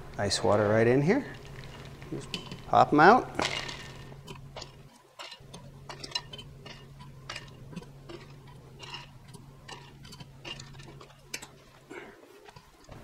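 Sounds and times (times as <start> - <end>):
low steady hum: 0.0 - 13.0
tongs clicking on eggs and rack: 4.2 - 11.6.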